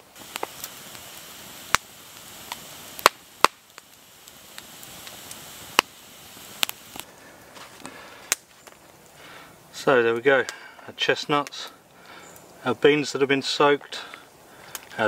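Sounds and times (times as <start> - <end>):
sharp fire pops: 0.0 - 7.1, 7.8 - 9.1
campfire crackling and hissing: 0.0 - 15.0.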